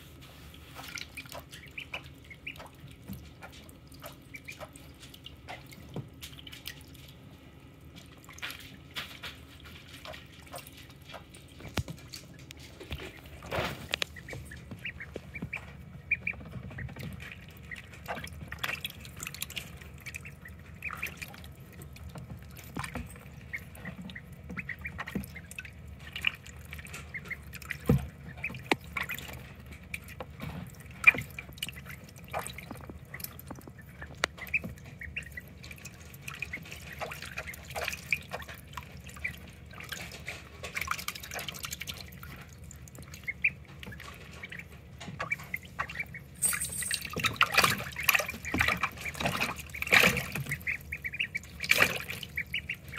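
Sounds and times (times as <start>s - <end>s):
ducklings splashing in water: 0.0s - 52.9s
ducklings peeping: 0.1s - 52.9s
water drips: 0.1s - 52.9s.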